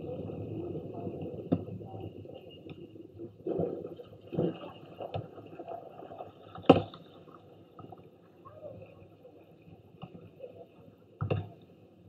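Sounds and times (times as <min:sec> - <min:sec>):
faint background noise: 0:00.0 - 0:12.0.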